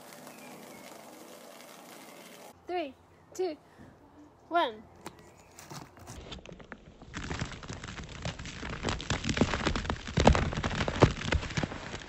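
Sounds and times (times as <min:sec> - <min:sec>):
droplets pattering down: 0:00.0 - 0:02.5
soda foam fizzing rush: 0:00.0 - 0:02.6.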